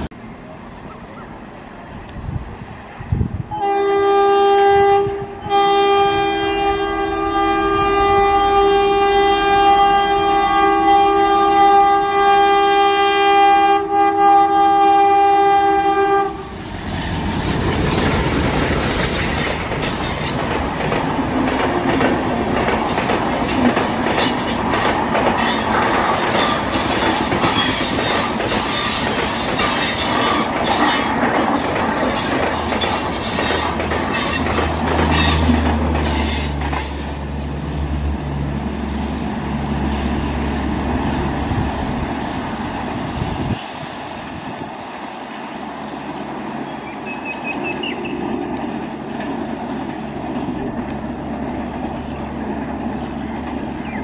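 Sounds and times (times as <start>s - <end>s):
locomotive horn chord: 3.5s - 16.6s
train wheels clattering over rail joints: 17.0s - 37.2s.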